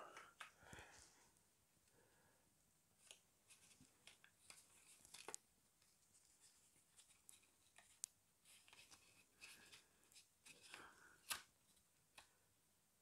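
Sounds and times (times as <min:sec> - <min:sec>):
small clicks and taps: 0:03.0 - 0:05.9, 0:07.0 - 0:09.0
light rubbing of plastic parts: 0:03.0 - 0:12.3.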